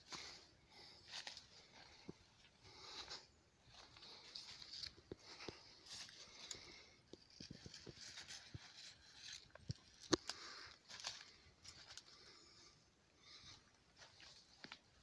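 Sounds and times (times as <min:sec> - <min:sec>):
footsteps in dry leaves: 0:02.7 - 0:06.6, 0:07.3 - 0:12.2.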